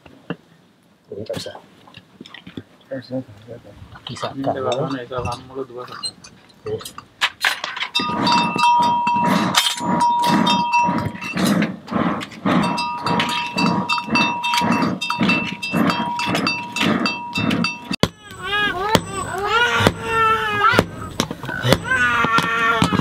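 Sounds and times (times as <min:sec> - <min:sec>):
hammer beating on anvil: 0:12.8 - 0:20.2, 0:20.8 - 0:23.0.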